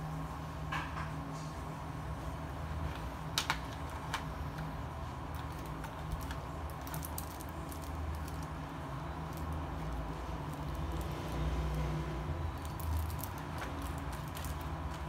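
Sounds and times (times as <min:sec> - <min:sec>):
pens and plastic case clicking: 0:05.3 - 0:08.6, 0:12.6 - 0:15.0.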